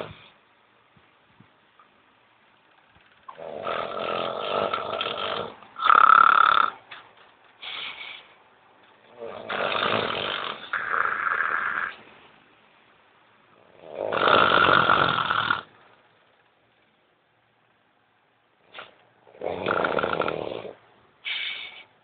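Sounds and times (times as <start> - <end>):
woman snoring: 3.3 - 6.8, 9.1 - 12.0, 13.7 - 15.7, 19.3 - 20.8.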